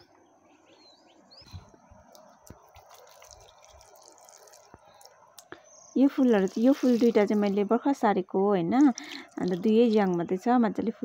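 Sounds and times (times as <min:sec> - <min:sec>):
soft bird chirps: 0:00.0 - 0:07.8
water trickling onto soil: 0:02.0 - 0:07.8, 0:08.7 - 0:10.4.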